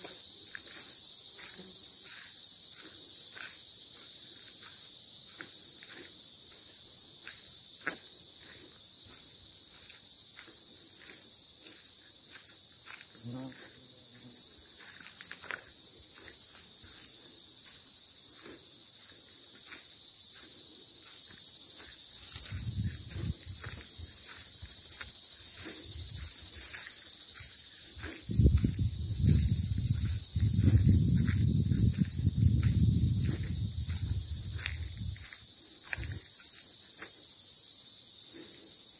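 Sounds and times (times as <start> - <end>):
cicadas buzzing: 0.0 - 38.9.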